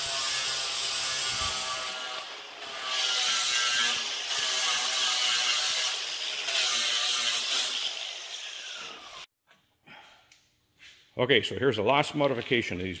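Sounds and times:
angle grinder grinding metal: 0.0s - 9.3s.

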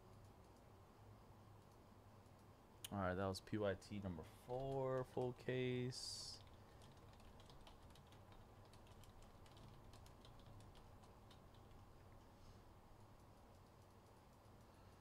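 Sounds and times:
keyboard keys clicking: 6.4s - 12.2s.

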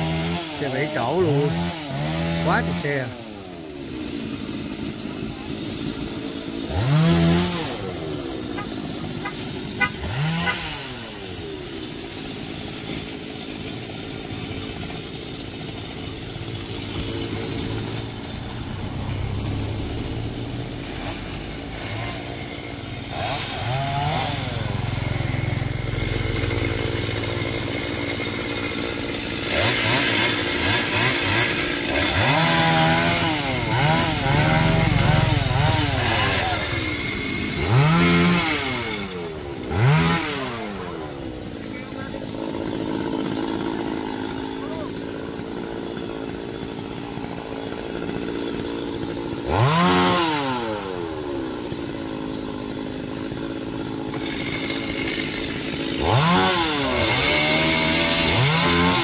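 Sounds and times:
chainsaw revving: 0.0s - 59.0s
motorbike passing: 16.8s - 21.4s, 34.1s - 37.0s.

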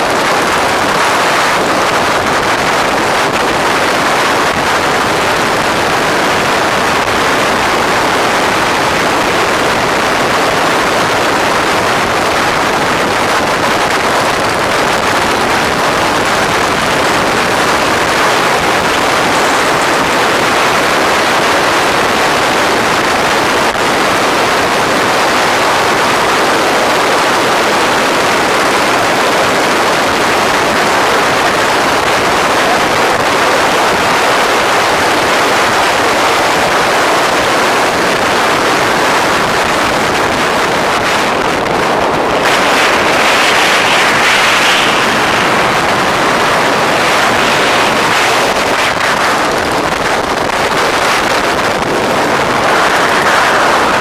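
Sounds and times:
wind rushing on microphone: 0.0s - 54.0s.

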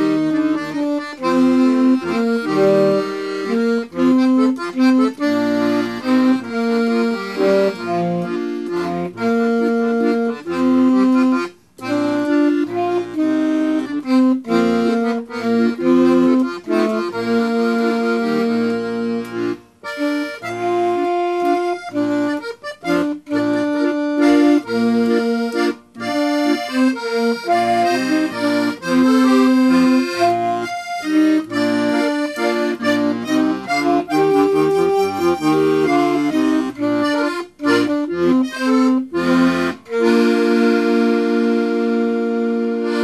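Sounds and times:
accordion playing lively melody: 0.0s - 43.0s.

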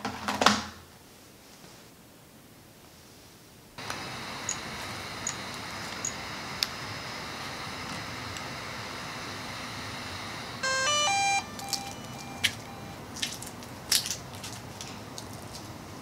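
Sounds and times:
drone start-up chime: 10.6s - 13.0s
faint beeps: 10.6s - 13.0s
crackling footfalls: 11.6s - 15.8s.

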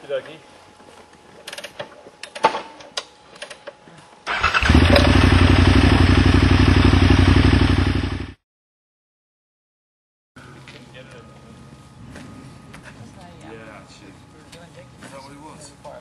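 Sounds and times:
motorcycle engine idling: 4.3s - 8.4s.

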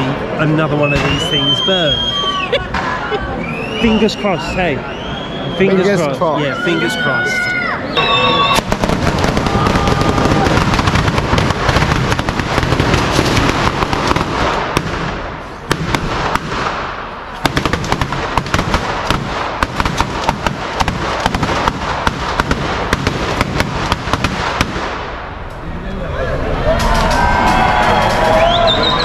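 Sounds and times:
firecrackers crackling: 8.0s - 25.6s, 26.7s - 29.0s
loud sharp firecracker bangs: 8.5s - 25.4s.

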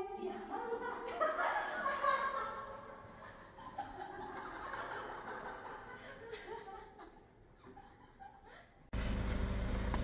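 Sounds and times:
soft laughter: 1.0s - 8.9s.

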